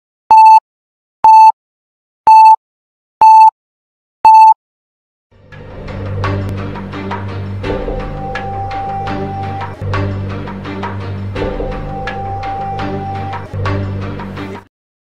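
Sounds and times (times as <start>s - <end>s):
electronic countdown beeps: 0.3s - 0.6s, 1.2s - 1.6s, 2.3s - 2.6s, 3.2s - 3.6s, 4.2s - 4.6s, 8.0s - 9.8s, 11.6s - 13.5s
music with drums: 5.9s - 14.7s.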